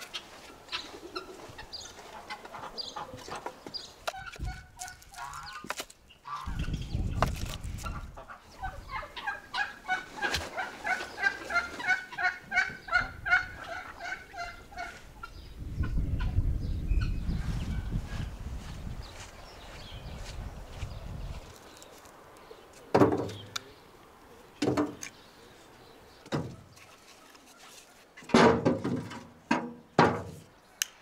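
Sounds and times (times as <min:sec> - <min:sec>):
poultry calling: 0:00.0 - 0:06.9, 0:07.8 - 0:16.4.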